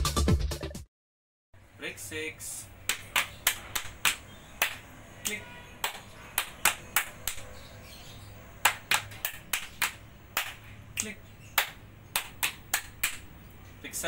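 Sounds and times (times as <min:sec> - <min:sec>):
hands clapping: 0:02.8 - 0:07.5, 0:08.6 - 0:13.3
palms slapping thighs: 0:02.9 - 0:07.4, 0:08.6 - 0:13.3.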